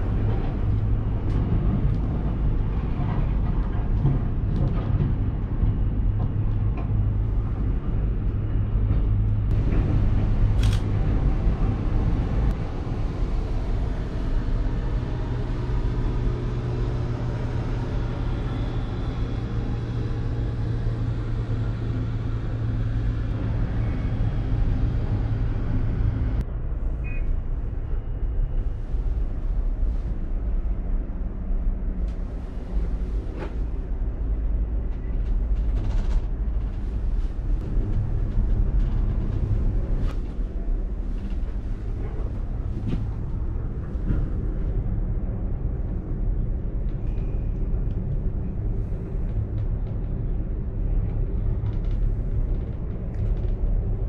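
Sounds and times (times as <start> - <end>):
cable car rumbling with a hum: 0.0 - 54.0.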